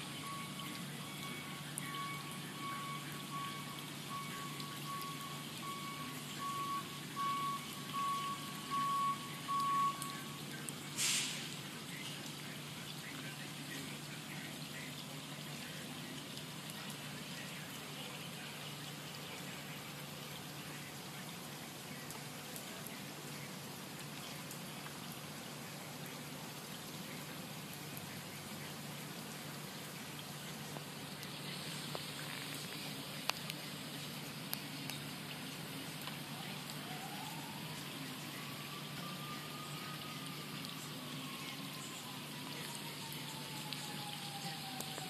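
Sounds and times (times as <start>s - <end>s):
reversing alarm beeping: 0.0s - 10.4s
drops ticking: 0.0s - 45.0s
rain falling on water: 0.0s - 45.0s
brief hiss: 11.0s - 11.6s.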